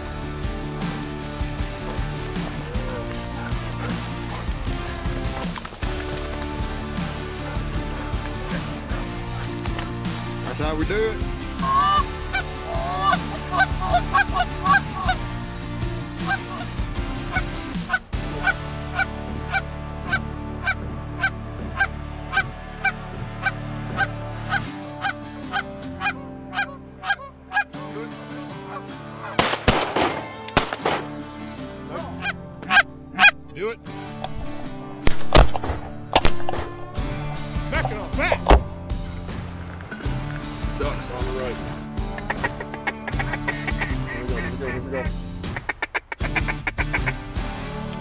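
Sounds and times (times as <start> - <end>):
geese honking: 0.0 - 10.6, 11.2 - 30.4, 31.9 - 33.4, 39.4 - 47.4
loud sharp sounds: 29.4 - 31.2.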